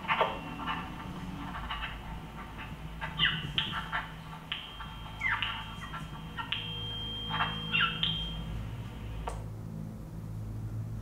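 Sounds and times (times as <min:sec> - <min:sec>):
walkie-talkie chirps and squawks: 0:00.0 - 0:09.2
steady high beep: 0:03.4 - 0:09.3.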